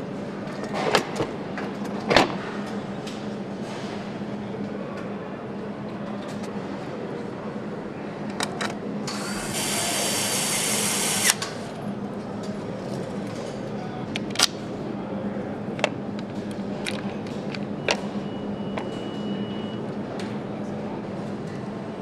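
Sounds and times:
machinery hum: 0.0s - 22.0s
power tool running: 9.1s - 11.4s.

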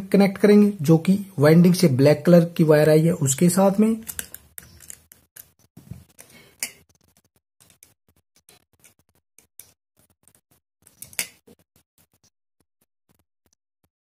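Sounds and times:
small clicks and scratches: 4.0s - 12.3s.

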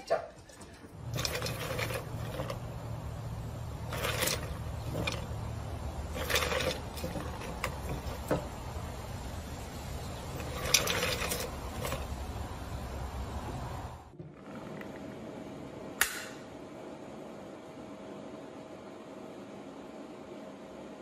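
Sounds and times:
low steady hum: 0.0s - 21.0s
scratching against a cup: 1.0s - 3.0s, 3.7s - 8.6s, 10.1s - 12.3s.

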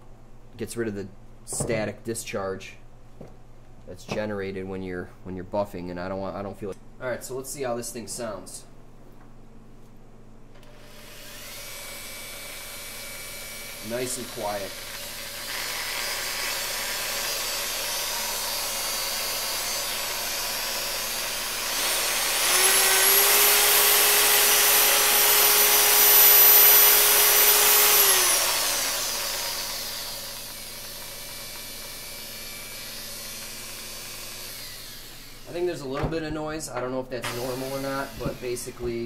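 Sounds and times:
person speaking: 0.6s - 2.8s, 3.8s - 8.8s, 13.8s - 14.8s, 35.5s - 39.0s
polisher motor whining: 10.6s - 35.5s, 37.2s - 39.0s.

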